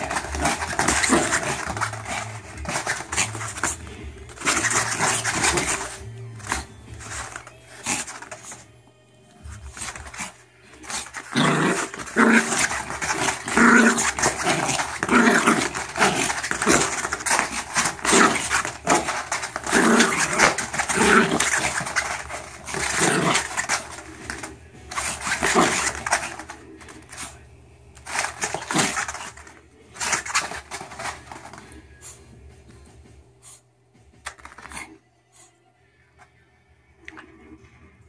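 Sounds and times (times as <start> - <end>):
small dog growling in play: 0.0 - 8.6, 9.6 - 27.4, 28.2 - 29.4.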